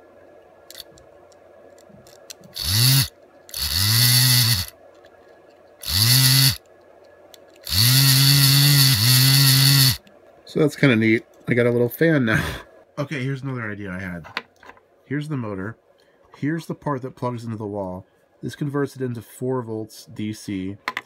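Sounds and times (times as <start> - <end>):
small electric motor whirring: 0.7 - 0.9, 2.1 - 4.7, 5.8 - 6.6, 7.6 - 10.0.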